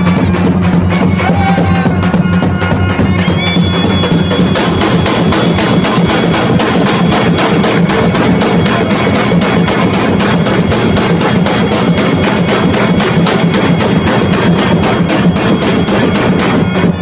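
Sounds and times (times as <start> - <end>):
bass drum beaten fast: 0.0 - 17.0
reedy wind instrument: 0.0 - 17.0.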